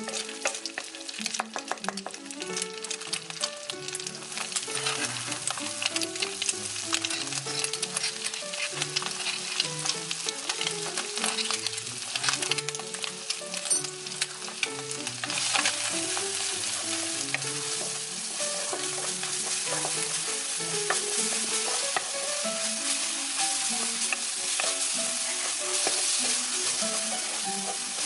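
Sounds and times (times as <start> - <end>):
sizzling in hot oil: 0.0 - 28.0
soft melody: 0.0 - 28.0
wooden spatula scraping pan: 0.0 - 28.0.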